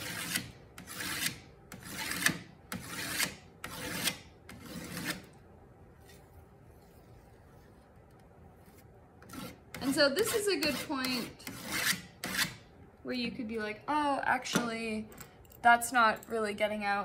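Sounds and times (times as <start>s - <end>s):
hand scraper scraping metal plate: 0.0s - 5.3s, 9.2s - 12.6s.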